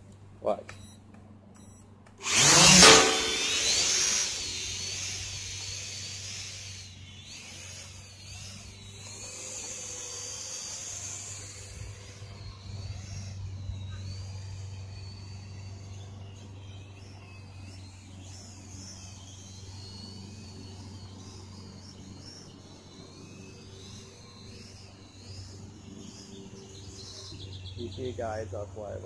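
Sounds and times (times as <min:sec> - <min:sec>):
drone propellers whining: 0:00.0 - 0:29.0.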